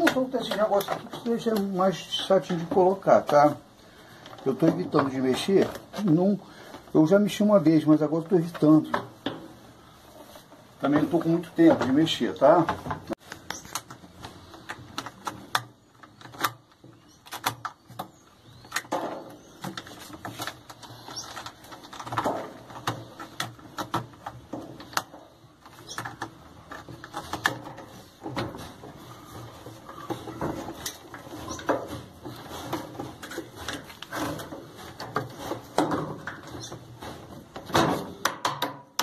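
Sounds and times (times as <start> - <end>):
metal and plastic clicks and knocks: 0.0 - 3.5, 11.6 - 39.0.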